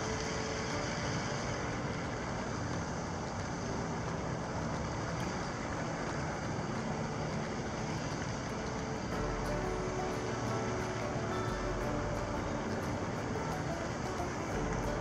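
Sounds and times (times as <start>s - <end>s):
outdoor background rumble and hiss: 0.0s - 15.0s.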